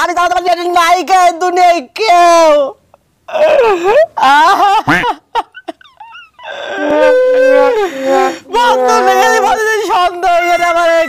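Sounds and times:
faint sobs: 3.3 - 11.0
man wailing: 4.8 - 5.2, 6.4 - 11.0.

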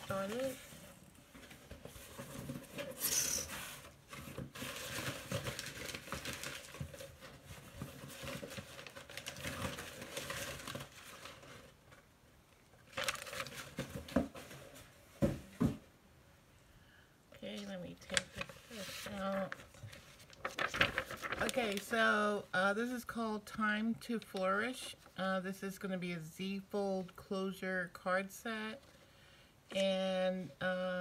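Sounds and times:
paper and plastic packaging crinkling: 0.0 - 12.1, 12.8 - 14.9, 17.5 - 22.2.

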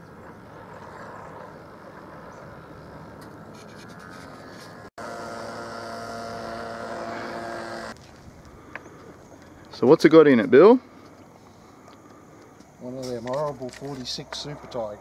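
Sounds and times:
model airplane engine idling: 4.0 - 9.6.

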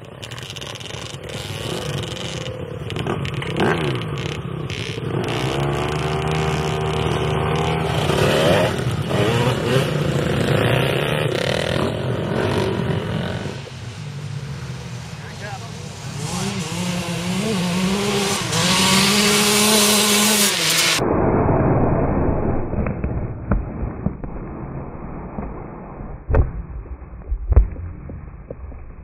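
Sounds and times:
dirt bike engines revving: 0.0 - 21.0.

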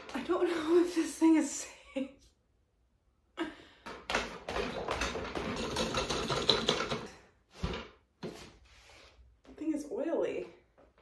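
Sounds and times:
office chair base clattering: 4.2 - 7.9.

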